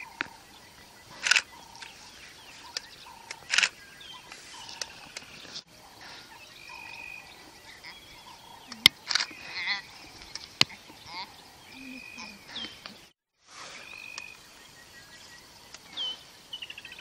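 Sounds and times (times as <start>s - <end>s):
sharp clicks: 1.2s - 2.0s, 2.7s - 5.3s, 8.7s - 9.4s.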